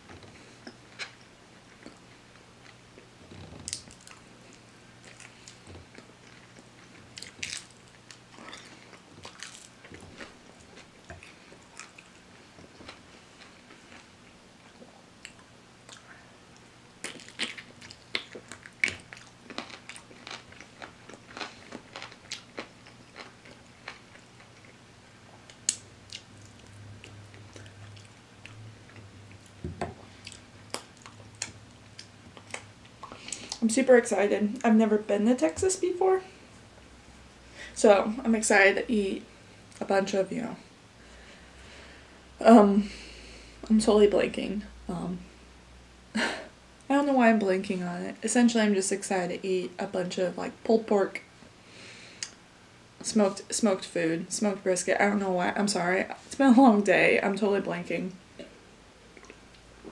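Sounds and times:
crunchy chewing of fried chicken: 0:00.2 - 0:33.6.

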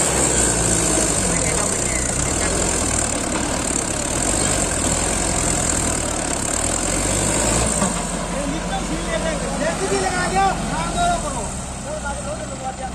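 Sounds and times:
tractor diesel engine under load: 0:00.0 - 0:12.9.

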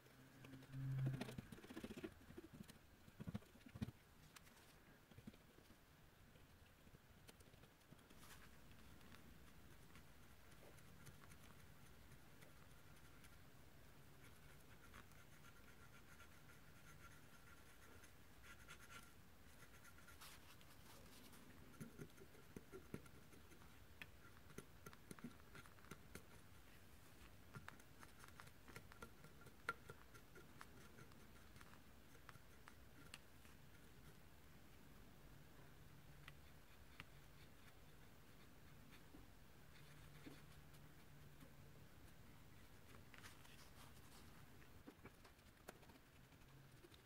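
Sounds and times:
cotton swab scratching chip: 0:08.1 - 0:34.3.

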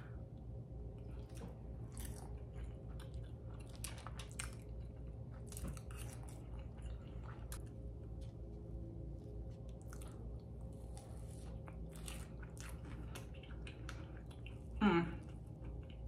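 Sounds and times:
chewing: 0:00.9 - 0:07.8, 0:09.5 - 0:16.0.

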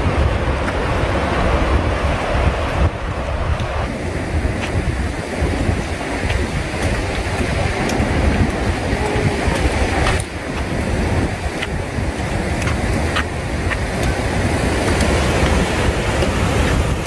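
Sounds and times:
white water rushing over rocks: 0:00.0 - 0:17.0
trekking poles clicking on rock: 0:06.2 - 0:17.0.

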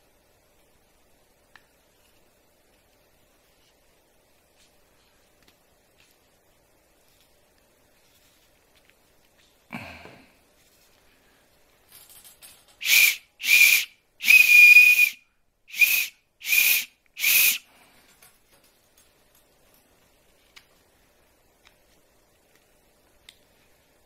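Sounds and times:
high-pitched whistle blasts: 0:12.8 - 0:17.7.

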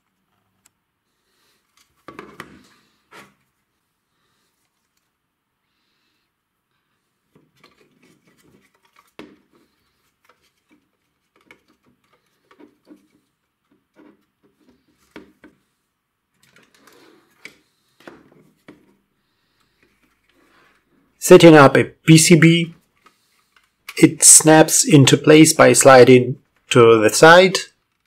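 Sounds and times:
rubber buttons rubbing: 0:07.3 - 0:15.7.

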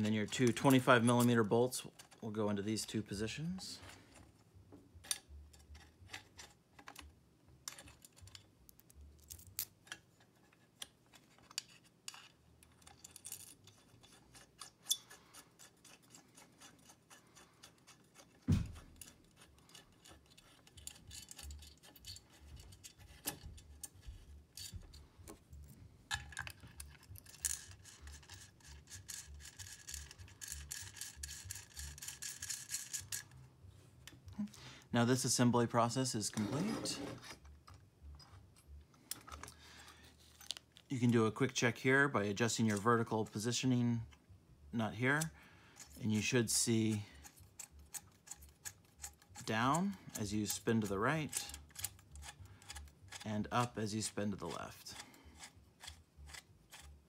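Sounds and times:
metal scraping on metal: 0:09.9 - 0:25.1, 0:36.2 - 0:37.5, 0:45.0 - 0:57.0.

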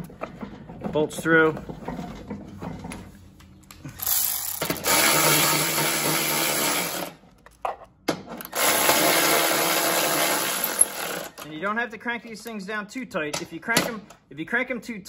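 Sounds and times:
electric ratchet running: 0:04.0 - 0:07.2, 0:08.4 - 0:11.4.

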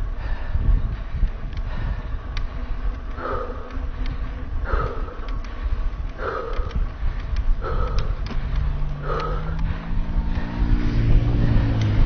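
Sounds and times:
low engine hum: 0:00.0 - 0:12.0
low wind: 0:00.0 - 0:12.0
person breathing hard: 0:00.0 - 0:12.0
trail rumble: 0:00.0 - 0:12.0
sharp clicks from bike: 0:01.2 - 0:10.6.

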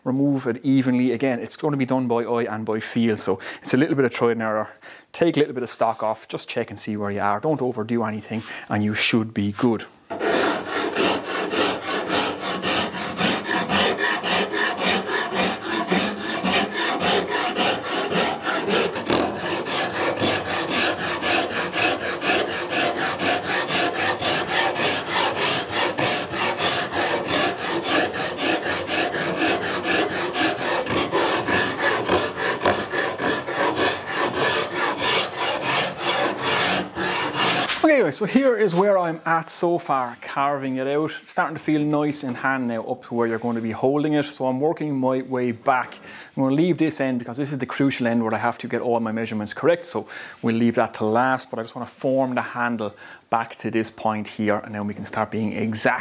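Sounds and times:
rasp filing wood: 0:10.1 - 0:37.9.

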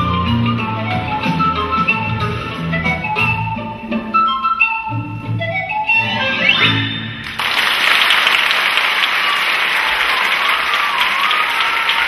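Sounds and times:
folk dance music: 0:00.0 - 0:12.0
audience applause: 0:07.2 - 0:12.0.

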